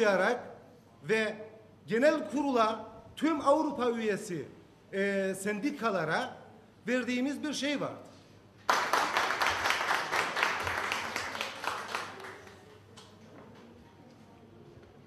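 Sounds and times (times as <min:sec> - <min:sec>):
audience applauding: 0:08.7 - 0:12.7.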